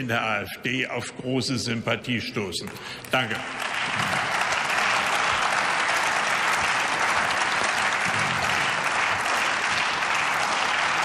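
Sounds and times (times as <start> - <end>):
crowd applauding: 3.0 - 11.0.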